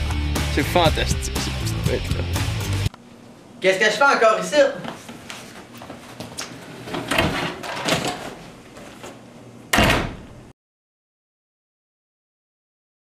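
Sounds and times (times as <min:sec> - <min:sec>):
footsteps: 0:04.7 - 0:07.1
door shutting with a bang: 0:09.7 - 0:10.4.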